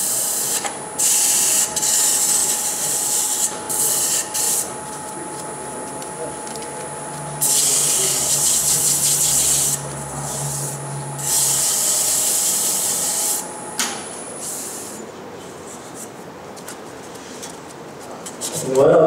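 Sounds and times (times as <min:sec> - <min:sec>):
lathe humming: 0:00.0 - 0:14.4
sandpaper hissing on turning wood: 0:07.4 - 0:13.4.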